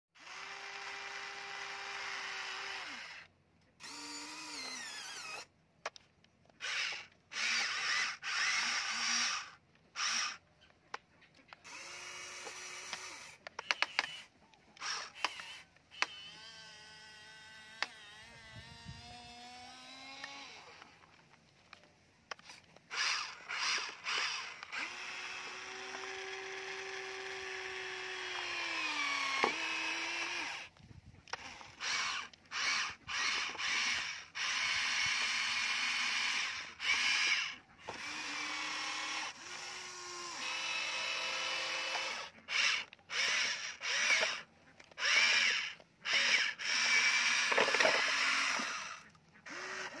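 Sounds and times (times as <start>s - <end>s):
toy motors whining: 0.2s - 50.0s
sharp clicks: 3.2s - 16.2s, 29.2s - 35.8s.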